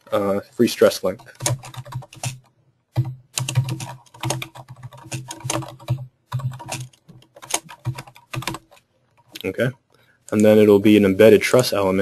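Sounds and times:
keyboard typing: 1.1s - 9.5s.

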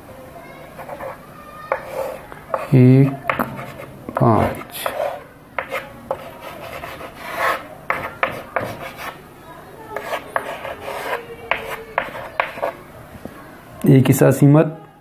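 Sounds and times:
chalk scratching on chalkboard: 0.7s - 9.2s, 9.9s - 12.8s.

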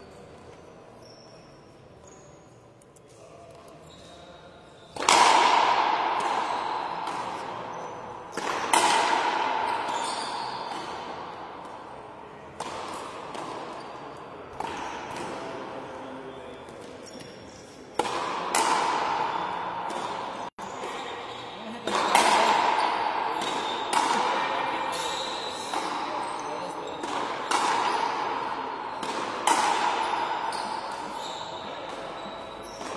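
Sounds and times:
racquet hitting rubber ball: 5.0s - 13.9s, 17.9s - 21.0s, 21.8s - 32.9s.

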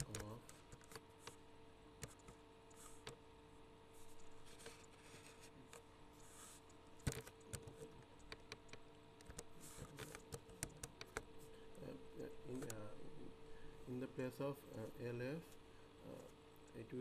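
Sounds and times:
computer keyboard typing: 0.0s - 1.4s, 2.0s - 3.2s, 7.0s - 11.3s
faint steady hum: 0.0s - 17.0s.

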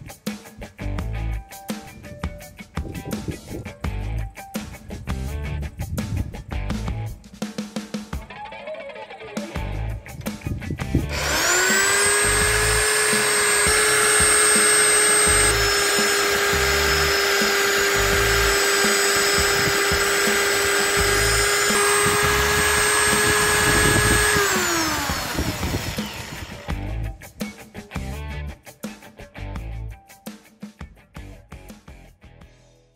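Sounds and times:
electric drill boring into wood: 11.0s - 26.9s.

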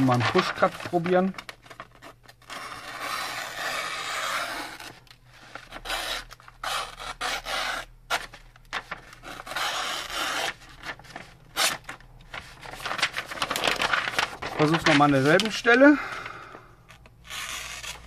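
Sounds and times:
paper rustling against knife blade: 10.1s - 15.8s.

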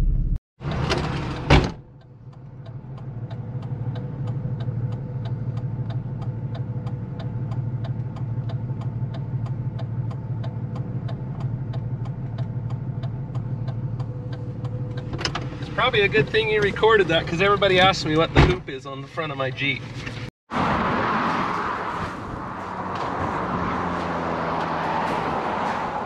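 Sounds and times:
car engine idling: 1.5s - 20.2s.

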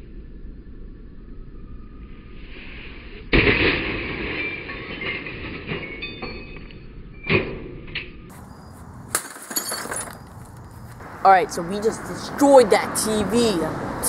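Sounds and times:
sledgehammer smashing television: 3.3s - 6.4s
glass and plastic shards clattering: 3.6s - 8.1s, 9.2s - 10.4s.

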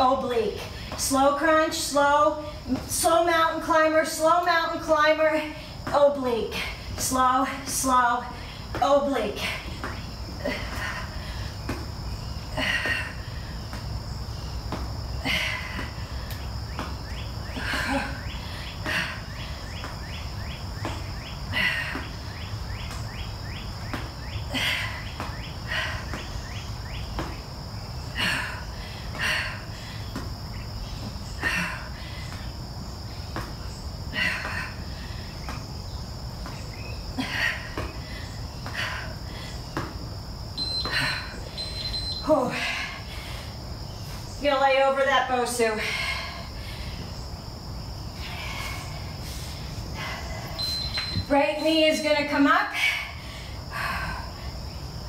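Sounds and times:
insects shrilling: 10.0s - 45.7s, 46.3s - 52.4s
person breathing: 48.2s - 50.7s, 52.8s - 54.6s.

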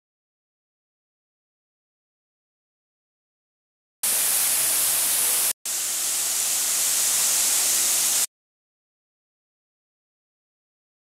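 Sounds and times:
fountain water jets splashing: 4.1s - 8.3s.

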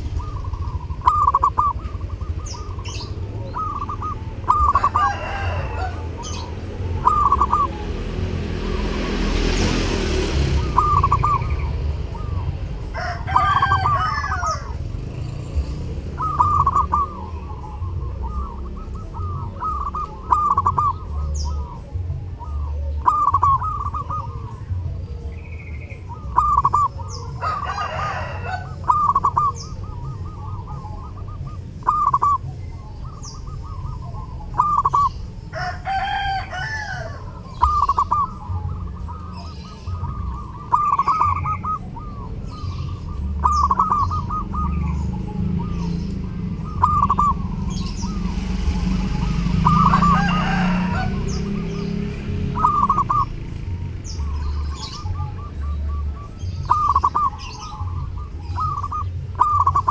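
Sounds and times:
dove cooing: 0.0s - 59.9s
other birds calling: 0.0s - 59.9s.

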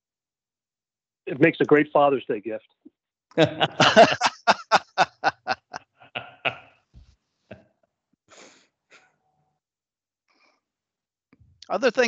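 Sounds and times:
man laughing heartily: 3.4s - 6.7s.

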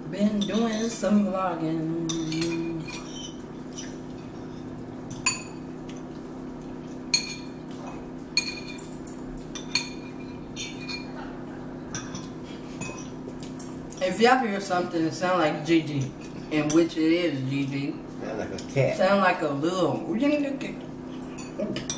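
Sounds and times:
steady low hum: 0.0s - 21.9s
cutlery clinking against bowls: 2.0s - 14.0s, 21.1s - 21.9s.

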